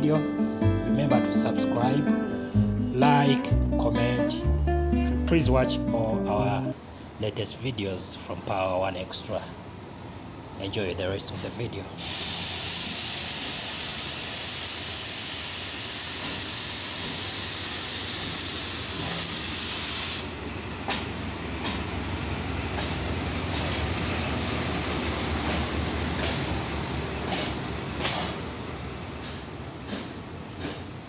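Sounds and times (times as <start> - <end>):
loud steady hiss: 12.0 - 20.4
locomotive engine rumble: 20.2 - 31.0
wheels clacking over rail joints: 20.3 - 31.0.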